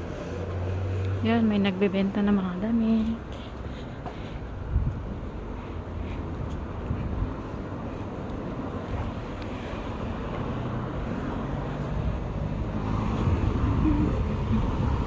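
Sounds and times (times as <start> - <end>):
street traffic: 0.0 - 15.0
wind buffeting microphone: 4.4 - 9.2, 11.8 - 15.0.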